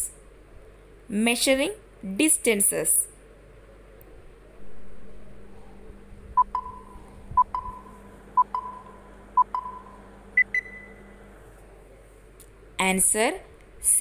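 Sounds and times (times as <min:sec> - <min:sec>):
countdown timer double beeps: 0:06.4 - 0:10.9.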